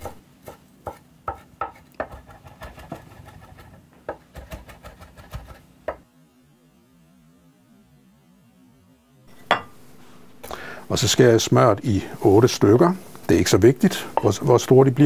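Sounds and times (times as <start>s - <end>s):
knife chopping on cutting board: 0.0s - 6.0s.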